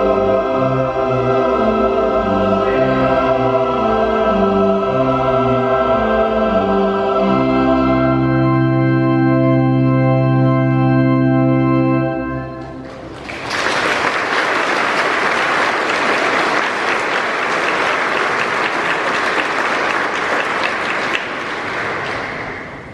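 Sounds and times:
choir singing: 0.0s - 8.9s
organ chord: 0.0s - 13.6s
applause: 12.6s - 22.9s.

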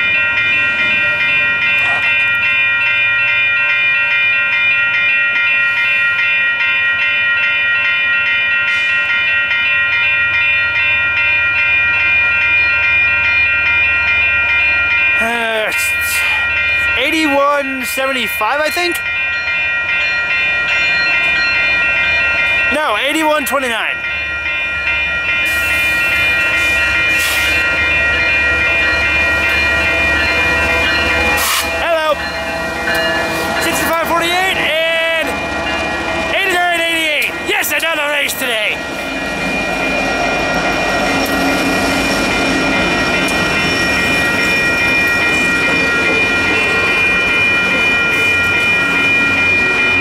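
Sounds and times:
railroad crossing bell ringing: 0.0s - 50.0s
locomotive rumble: 24.0s - 50.0s.

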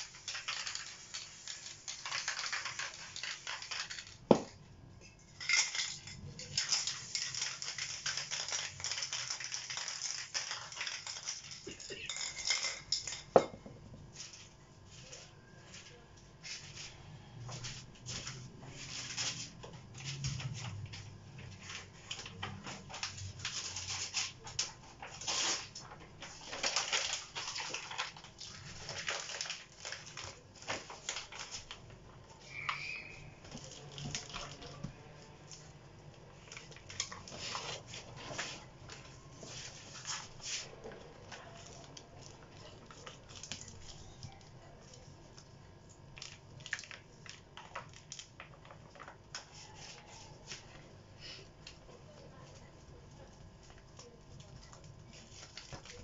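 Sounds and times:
magazine paper crinkling: 0.0s - 4.4s, 6.4s - 11.7s, 18.9s - 31.9s, 53.7s - 56.0s.

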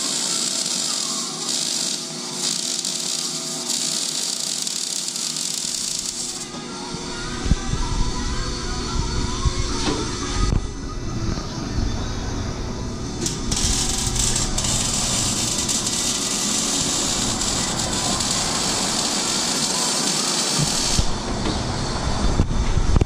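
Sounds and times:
shop tool hissing: 0.0s - 6.5s, 13.2s - 22.1s
low shop rumble: 0.0s - 23.0s.

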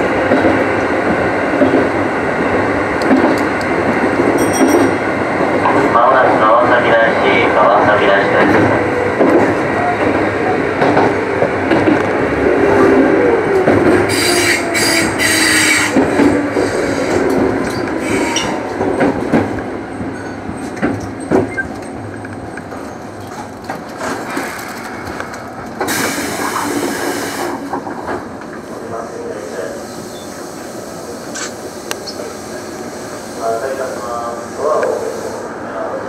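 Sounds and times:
air hiss: 25.9s - 27.6s.

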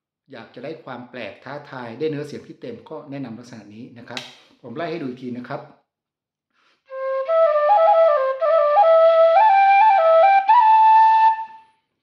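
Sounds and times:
flute playing a rising run: 6.9s - 11.7s.

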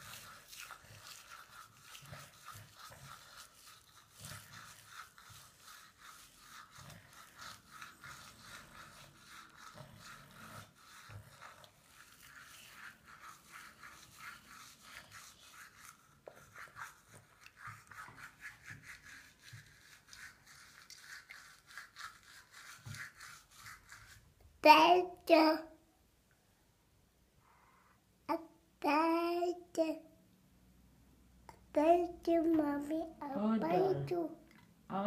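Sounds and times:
toothbrush scrubbing teeth: 0.0s - 24.3s.

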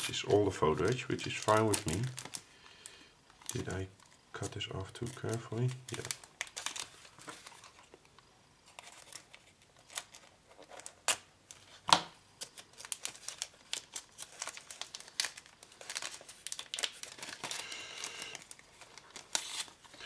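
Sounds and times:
plastic bag crinkling: 0.3s - 2.5s, 3.3s - 8.0s, 12.4s - 20.0s.

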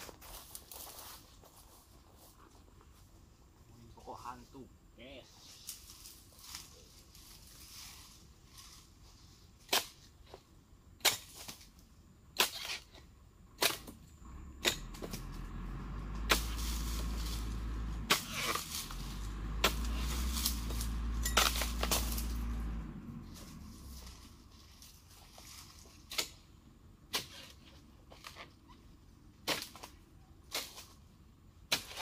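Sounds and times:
palm chisel chopping frond bases: 9.6s - 10.4s, 11.0s - 11.7s, 12.4s - 14.0s, 14.6s - 22.6s, 23.3s - 28.7s, 29.4s - 31.0s, 31.6s - 32.0s
low steady rumble: 13.0s - 32.0s.

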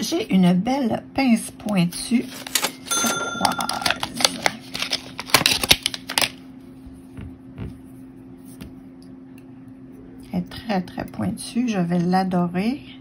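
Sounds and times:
plastic packaging crinkling: 3.5s - 6.4s.

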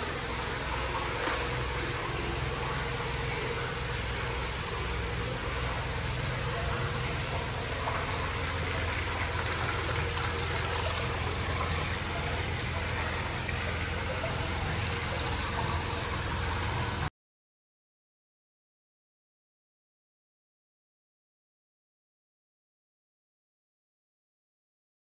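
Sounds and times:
low hum: 0.0s - 17.1s
water rushing into a bath: 0.0s - 17.1s.

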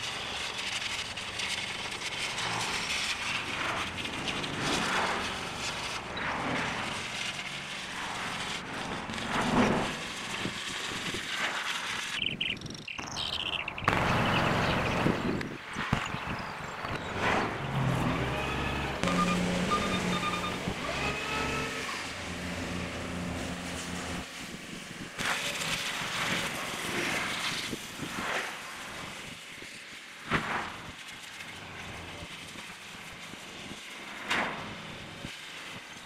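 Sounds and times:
engine running: 0.0s - 36.0s
bursts of noise: 4.2s - 24.3s.

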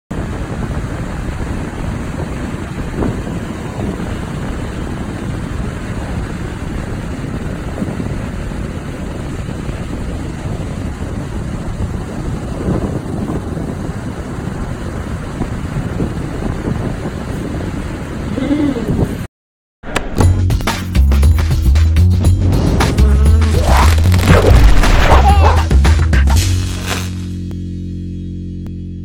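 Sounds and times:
ocean surf: 0.1s - 12.8s
wind noise on microphone: 0.1s - 19.3s, 22.2s - 25.8s.

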